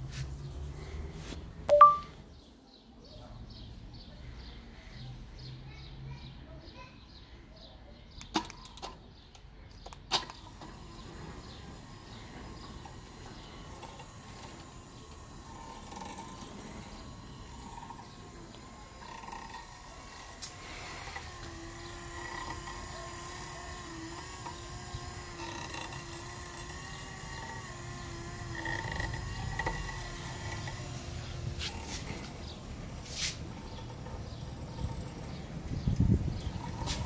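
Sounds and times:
faint motor whine: 9.6 - 37.0
gate opener motor running: 9.8 - 37.0.

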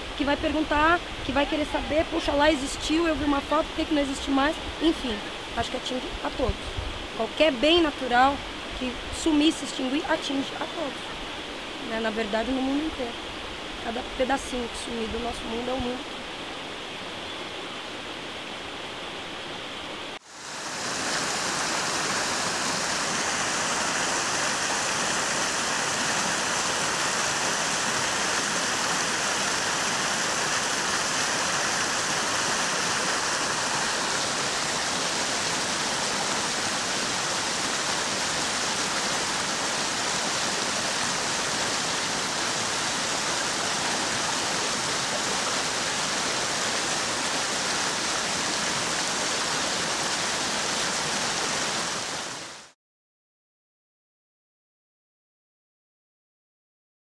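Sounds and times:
river rushing over rocks: 20.3 - 52.7.

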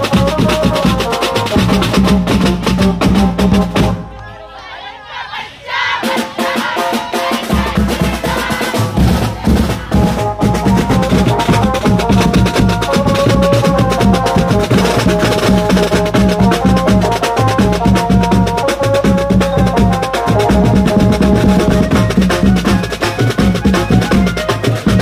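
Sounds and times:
side drum beaten with sticks: 0.0 - 4.0, 6.0 - 25.0
bass drum: 0.0 - 4.1, 7.5 - 25.0
melody of held notes: 10.2 - 25.0.

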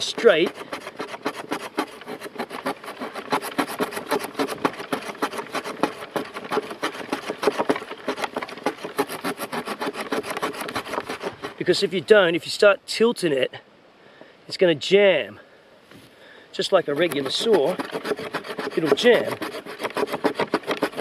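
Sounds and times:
knife sawing through wood: 0.0 - 12.0, 16.6 - 21.0.

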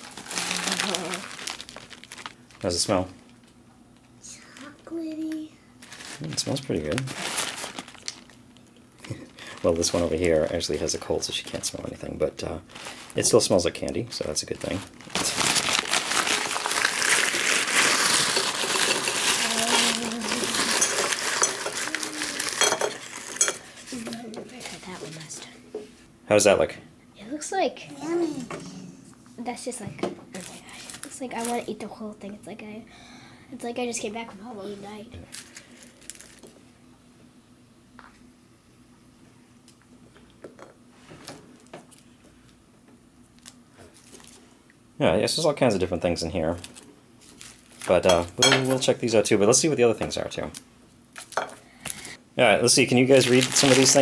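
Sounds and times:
paper bag crinkling: 0.0 - 3.1, 5.8 - 8.4, 12.7 - 13.6, 14.5 - 24.0, 30.4 - 31.7, 35.3 - 36.5, 46.4 - 48.8, 52.8 - 54.0
candies clinking into ceramic bowl: 16.4 - 23.7, 47.8 - 48.8.

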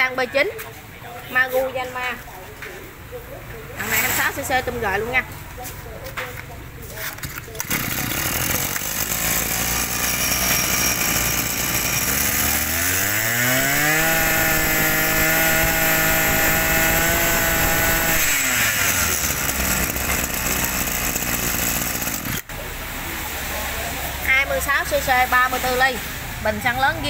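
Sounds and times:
brush cutter engine revving: 7.3 - 22.5.

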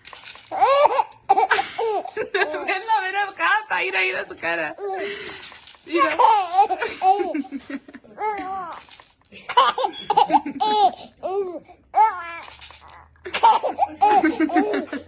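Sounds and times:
baby laughing: 0.5 - 2.7, 5.9 - 8.9, 9.5 - 15.0.

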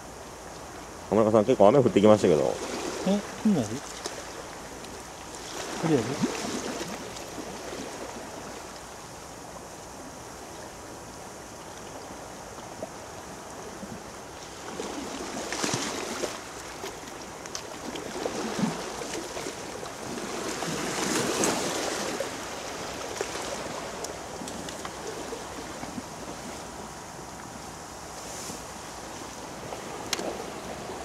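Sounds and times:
sea waves on rocky shore: 0.0 - 10.8, 12.0 - 31.0.

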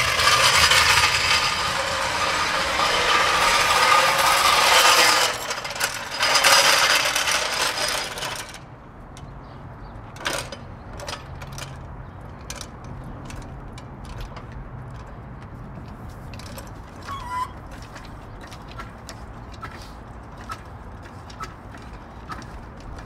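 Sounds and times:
floor jack rattling and ratcheting: 0.0 - 8.6.

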